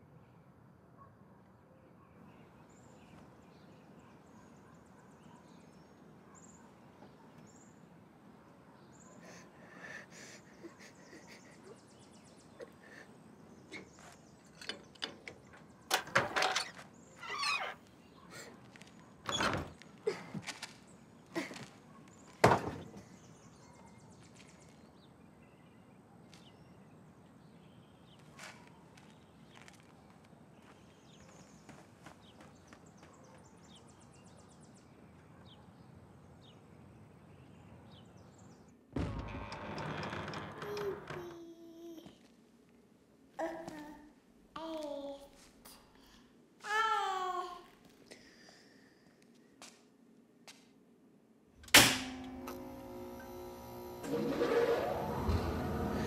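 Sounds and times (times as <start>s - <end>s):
low hum: 51.6s - 56.0s.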